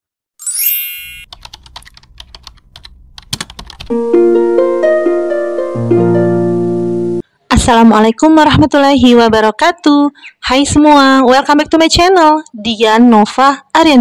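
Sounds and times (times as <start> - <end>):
plucked harp-like melody: 0.4 - 1.2, 3.9 - 7.2
bright ringing chime: 0.4 - 1.3
keyboard typing clicks: 1.3 - 3.9.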